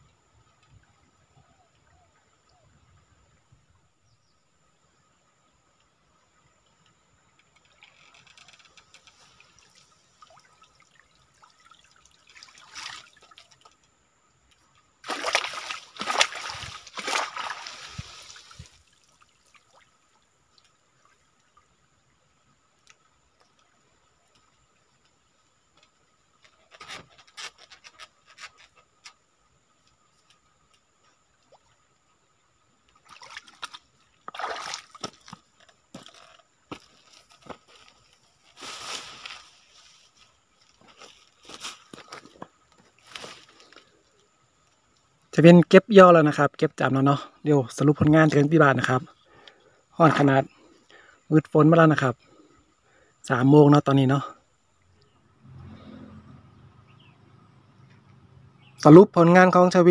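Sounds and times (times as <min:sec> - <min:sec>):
water splashing off a net: 0:09.3 - 0:13.7, 0:15.0 - 0:20.0, 0:33.0 - 0:35.4.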